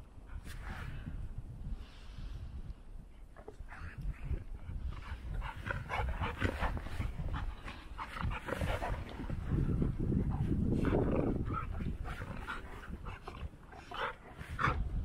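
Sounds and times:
dogs play-wrestling and vocalizing: 3.2s - 15.0s.

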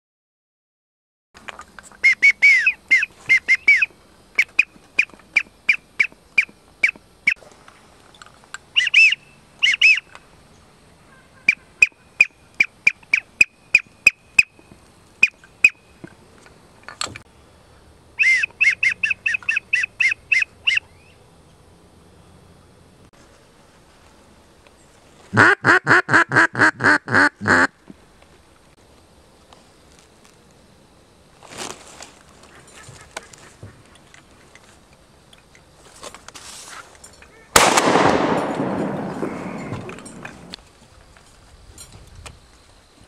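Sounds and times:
goose honking: 25.3s - 27.7s.

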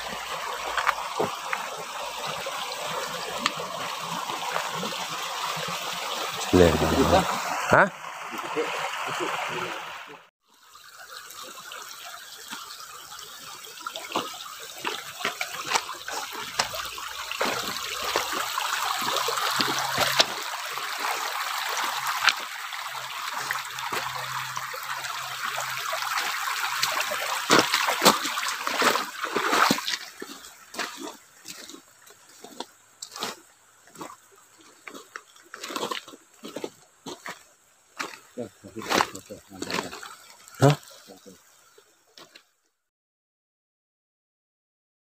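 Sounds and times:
stream running over stones: 0.0s - 42.6s
footsteps crunching on gravel: 0.6s - 1.7s, 15.2s - 18.5s, 32.4s - 40.0s.

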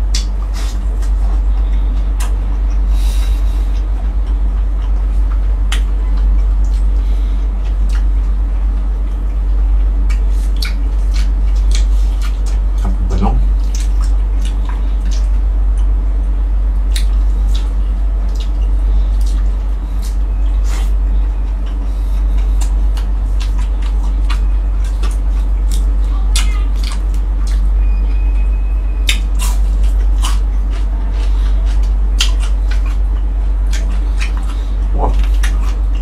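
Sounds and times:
person chewing: 0.0s - 16.0s, 16.8s - 28.2s, 29.0s - 36.0s
steady low hum: 0.0s - 36.0s
wet lip-smacking clicks: 5.7s - 6.9s, 10.1s - 13.0s, 13.6s - 15.9s, 16.9s - 20.6s, 29.0s - 30.4s.

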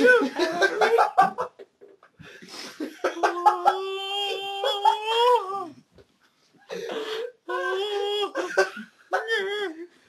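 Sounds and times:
young man wailing: 0.0s - 1.1s, 3.0s - 5.8s, 7.3s - 9.9s.

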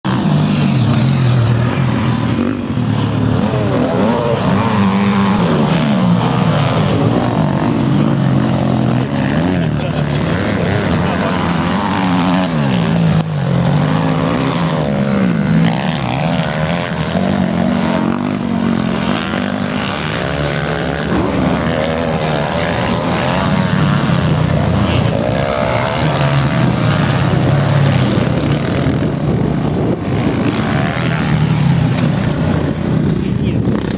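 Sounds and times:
dirt bike engines revving: 0.0s - 33.9s.

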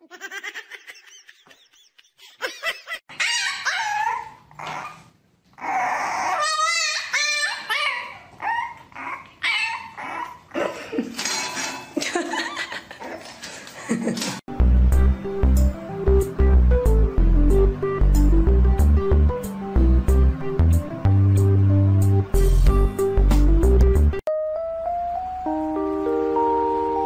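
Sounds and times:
dogs whining and yelping: 3.1s - 10.8s.

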